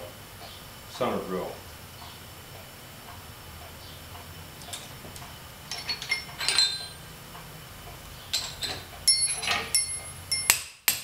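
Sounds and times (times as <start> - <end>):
low steady hum: 0.0 - 10.6
metallic clinks of steel tooling: 5.7 - 7.1, 8.3 - 11.0.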